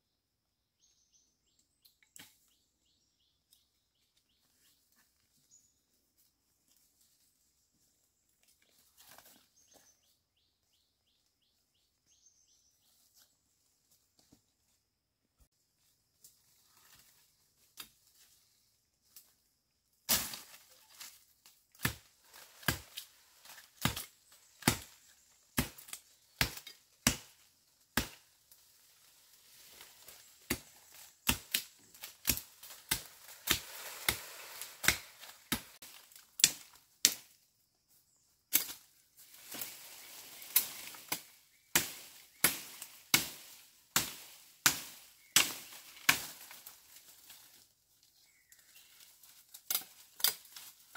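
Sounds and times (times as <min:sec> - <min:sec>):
blade chopping wood: 0:21.8 - 0:23.0, 0:23.6 - 0:25.0, 0:25.6 - 0:27.4, 0:28.0 - 0:28.2, 0:30.5 - 0:37.2.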